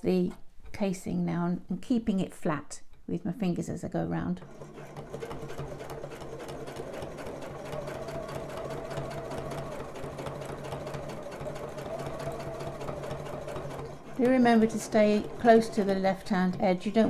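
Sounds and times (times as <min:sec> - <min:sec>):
sewing machine stitching: 0:04.4 - 0:17.0.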